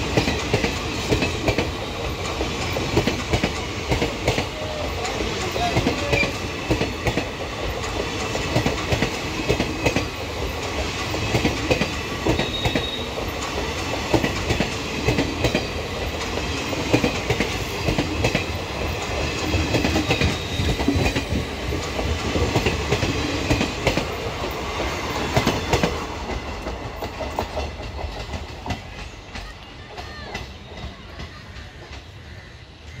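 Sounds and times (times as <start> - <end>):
train passing at speed: 0.0 - 33.0.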